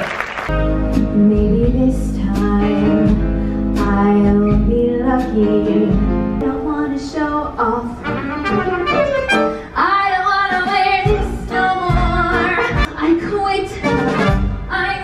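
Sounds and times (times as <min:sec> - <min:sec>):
band playing: 0:00.5 - 0:06.4, 0:07.9 - 0:09.9, 0:10.5 - 0:13.0, 0:13.8 - 0:14.9
woman singing into microphone: 0:01.0 - 0:08.3, 0:09.7 - 0:15.0.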